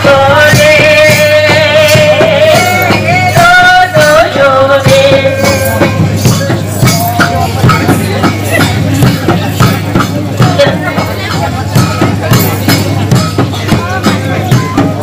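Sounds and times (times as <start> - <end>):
person singing long notes: 0.0 - 6.1
steady percussion beat: 0.0 - 15.0.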